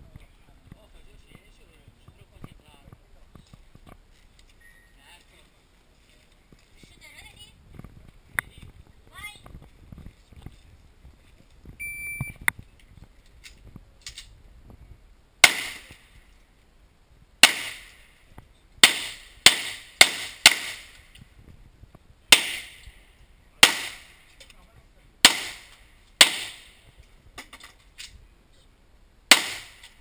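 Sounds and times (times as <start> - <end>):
shot timer beep: 4.6 - 5.0, 11.8 - 12.4.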